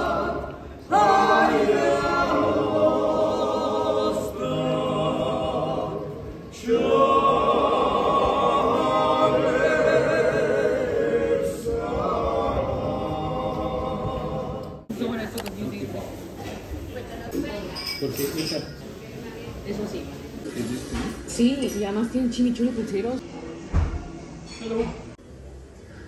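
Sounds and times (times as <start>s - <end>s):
a cappella group singing in harmony: 0.0s - 14.9s.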